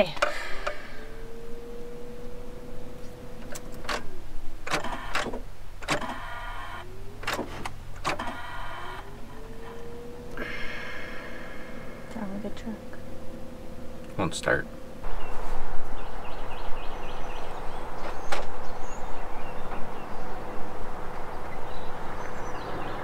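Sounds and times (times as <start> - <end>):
starter motor whining: 0.0 - 14.2
starter clicks: 3.4 - 9.8.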